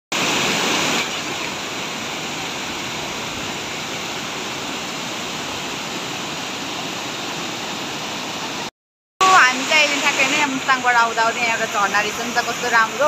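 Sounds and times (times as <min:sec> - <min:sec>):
waterfall rushing over rocks: 0:00.1 - 0:13.0.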